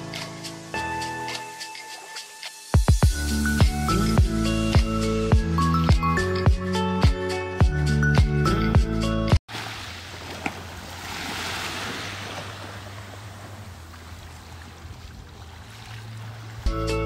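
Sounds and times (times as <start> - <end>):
small waves washing on sand: 9.5 - 16.7.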